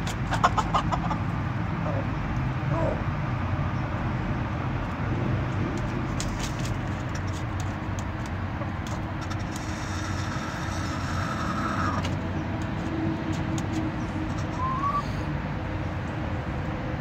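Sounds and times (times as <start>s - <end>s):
chickens pecking feed: 0.0s - 1.3s, 4.8s - 15.0s.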